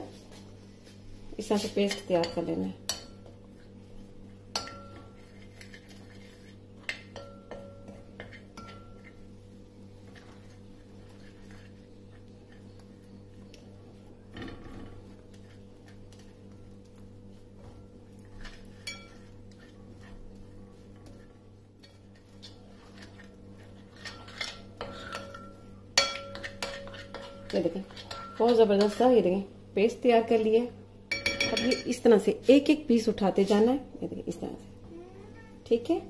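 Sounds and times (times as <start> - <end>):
steady low hum: 0.0 - 36.0
spoon stirring batter: 1.4 - 14.3, 14.9 - 29.5
spoon clinking against glass bowl: 18.8 - 19.2, 31.1 - 32.0.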